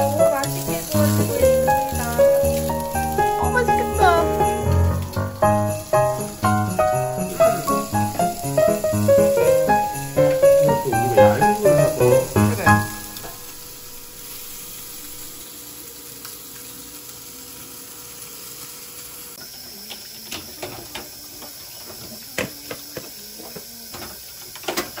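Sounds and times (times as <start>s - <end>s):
music: 0.0s - 15.4s
water running into metal sink: 0.0s - 25.0s.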